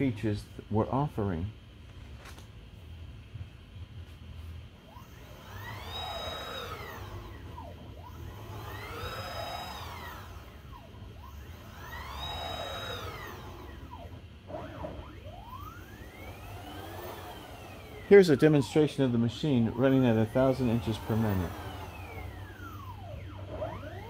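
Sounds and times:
router motor whine: 0:04.8 - 0:24.0.

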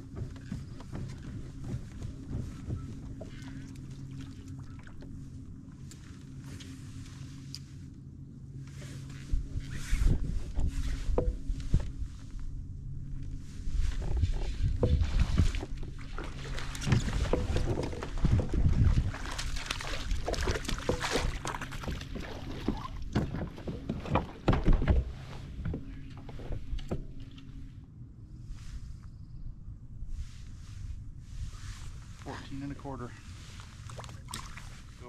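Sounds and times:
heavy thuds through hull: 0:00.0 - 0:04.3, 0:13.7 - 0:27.2
knocks and scrapes on plastic kayak: 0:00.0 - 0:04.3, 0:08.7 - 0:12.1, 0:13.6 - 0:27.4.

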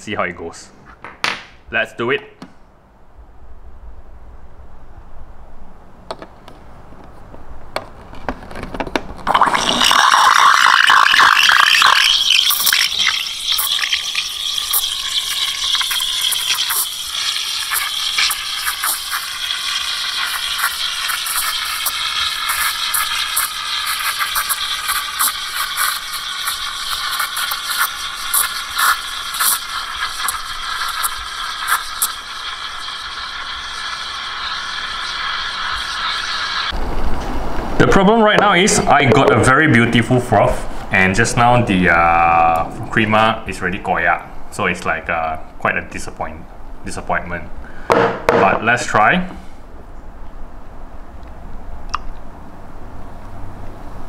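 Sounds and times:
steam wand hissing into milk: 0:09.3 - 0:36.8.

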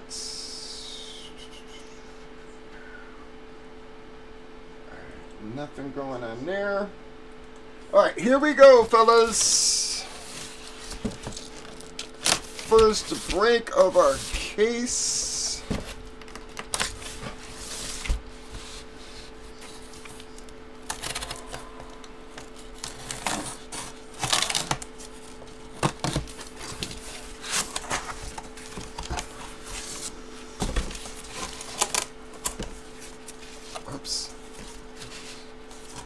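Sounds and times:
faint steady hum: 0:00.0 - 0:36.0
cardboard rustling and scraping: 0:09.0 - 0:36.0.

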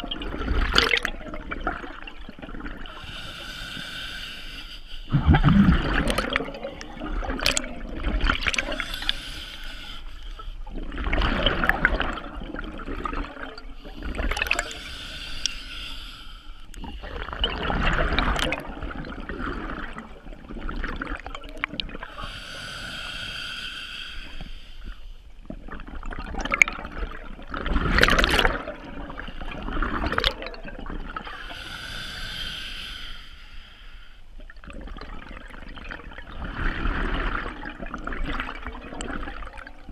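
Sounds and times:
regulator hiss on inhale: 0:03.0 - 0:05.1, 0:08.7 - 0:10.6, 0:14.7 - 0:17.0, 0:22.2 - 0:25.2, 0:31.3 - 0:34.4
bubbling rush on exhale: 0:05.1 - 0:09.8.

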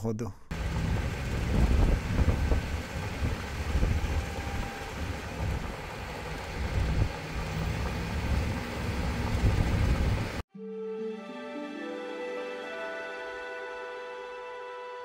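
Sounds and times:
vehicle engine and road rumble: 0:00.5 - 0:10.4
wind noise on microphone: 0:00.8 - 0:10.4.

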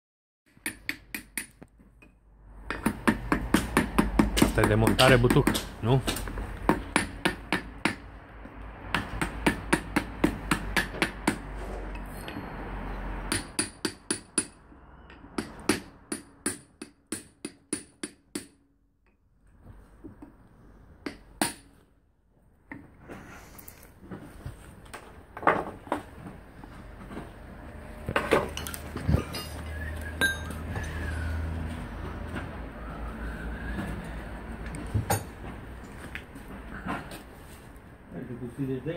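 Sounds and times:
hammer striking steel drift: 0:29.2 - 0:30.6.

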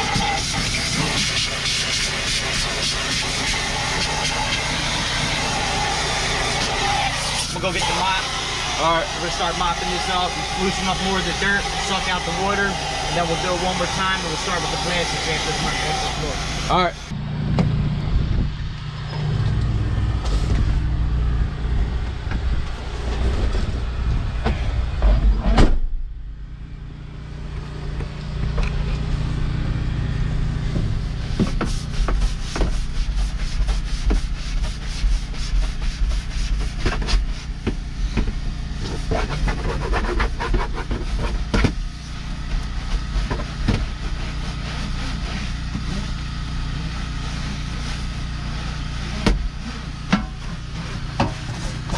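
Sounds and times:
brush scrubbing wet floor: 0:00.0 - 0:16.9, 0:31.1 - 0:37.6, 0:38.7 - 0:51.9
low mechanical hum: 0:00.0 - 0:51.9.

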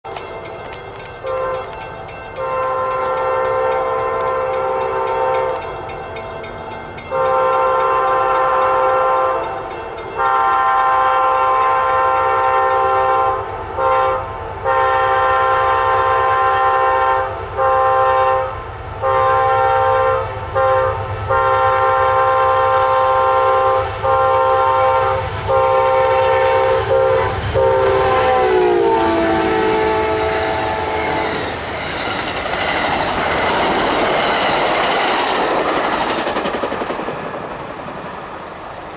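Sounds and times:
train rumble: 0:00.1 - 0:38.9
locomotive horn blasts: 0:01.2 - 0:06.0, 0:07.1 - 0:31.5.

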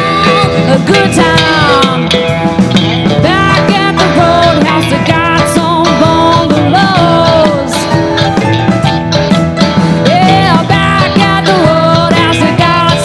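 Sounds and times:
country rock band playing: 0:00.0 - 0:13.0.

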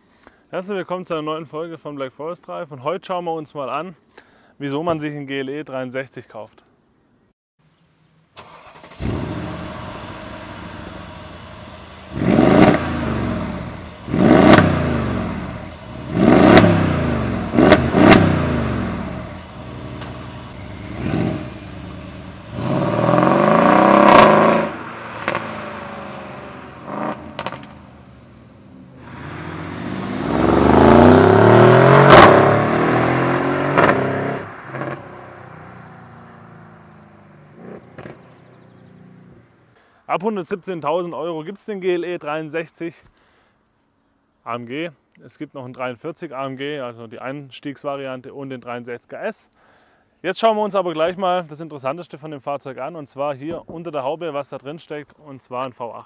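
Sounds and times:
exhaust cracks: 0:08.4 - 0:38.8
car engine revving: 0:08.4 - 0:39.5.

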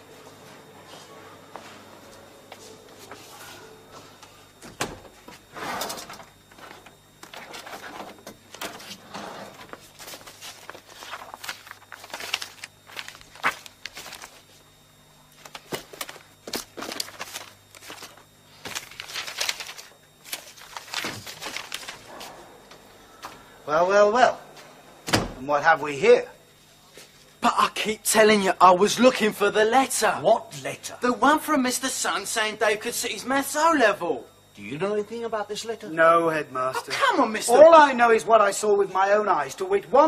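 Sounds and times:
low steady hum: 0:00.0 - 0:40.0
paper rustling: 0:06.6 - 0:14.6, 0:15.3 - 0:22.4.

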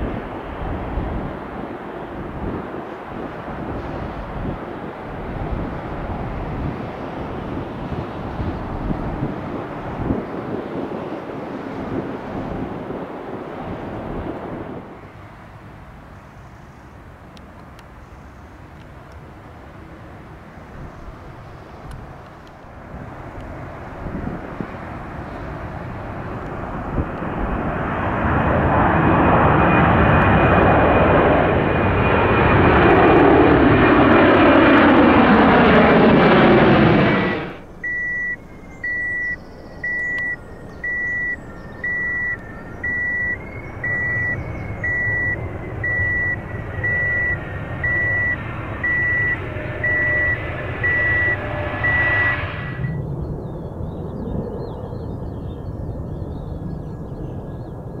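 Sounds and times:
jet engines roaring: 0:00.0 - 0:58.0
low rumble: 0:26.1 - 0:54.3
reversing alarm beeping: 0:36.8 - 0:53.0.

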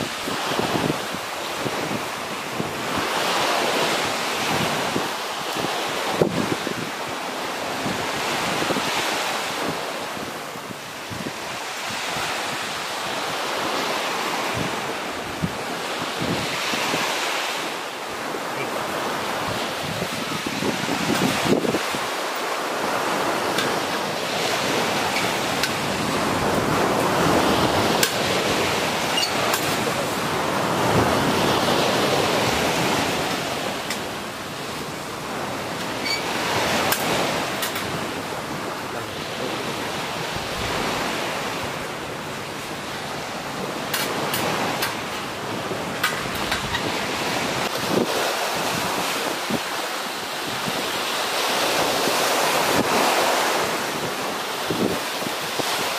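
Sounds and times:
surf washing onto sand: 0:00.0 - 0:55.9.

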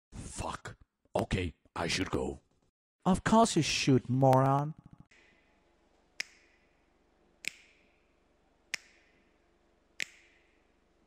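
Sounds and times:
finger snaps: 0:06.2 - 0:06.7, 0:07.4 - 0:08.0, 0:08.7 - 0:09.3, 0:10.0 - 0:10.6.

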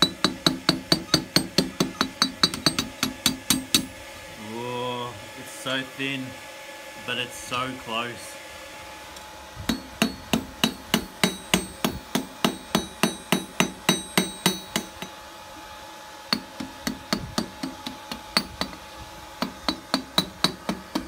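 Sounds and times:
hammer striking metal on anvil: 0:00.0 - 0:03.9, 0:09.7 - 0:15.2, 0:19.4 - 0:21.0.

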